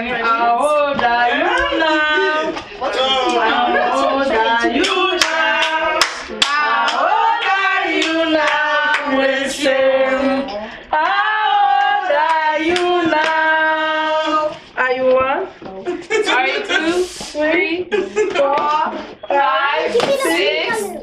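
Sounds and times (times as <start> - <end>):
hand claps: 4.8 - 7.0
person singing: 18.3 - 21.0.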